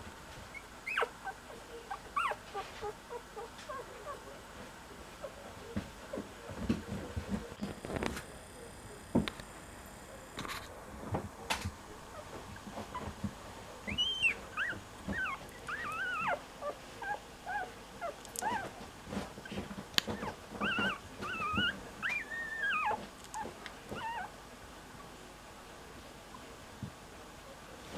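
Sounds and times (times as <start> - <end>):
puppy whimpering and squeaking: 0.5 - 4.2, 13.9 - 18.8, 19.4 - 24.3.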